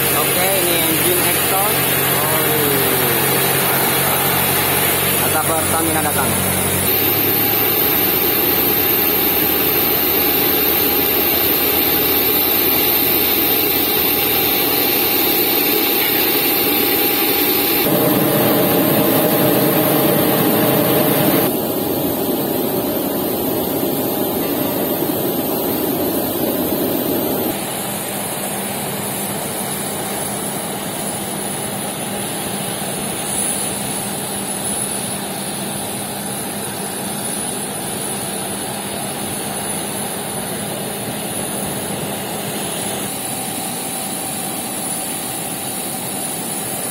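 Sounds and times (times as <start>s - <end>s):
ground vehicle engines running: 0.0s - 12.4s
aircraft auxiliary power unit whine: 0.0s - 46.9s.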